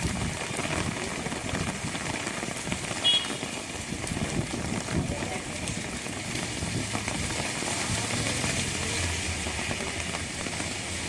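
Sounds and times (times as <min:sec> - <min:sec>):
heavy rain on street: 0:00.0 - 0:11.0
vehicle rumble: 0:04.4 - 0:11.0.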